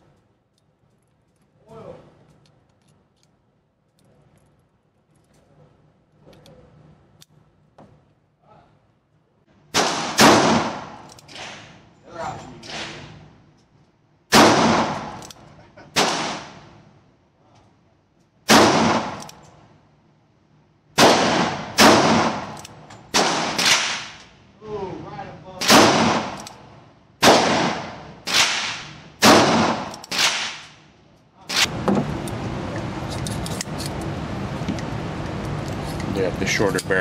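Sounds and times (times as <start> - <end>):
revolver gunshots echoing: 9.7 - 11.8, 14.3 - 15.2, 15.9 - 16.7, 18.5 - 19.3, 21.0 - 24.2, 25.6 - 30.8.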